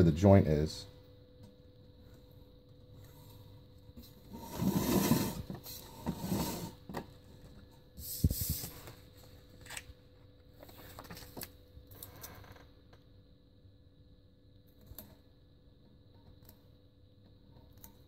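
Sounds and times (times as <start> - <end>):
rustling rubs and scrapes: 4.0 - 6.9, 8.0 - 9.8.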